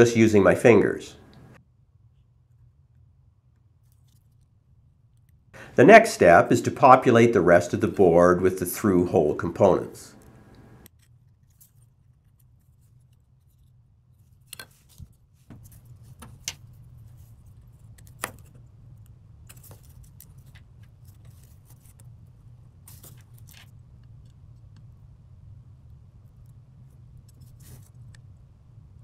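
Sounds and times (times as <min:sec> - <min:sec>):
low steady hum: 0:00.0 - 0:29.0.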